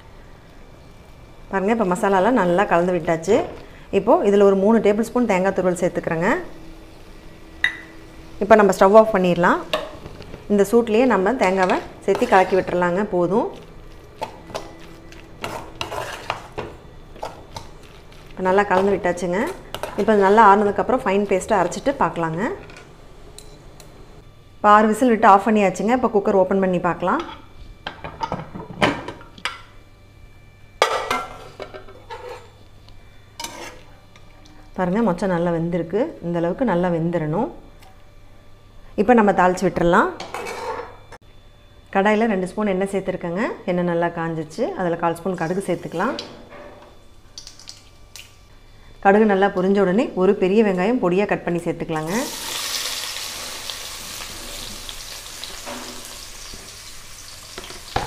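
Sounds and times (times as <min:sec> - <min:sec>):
onion sizzling in hot oil: 0:52.0 - 0:58.0.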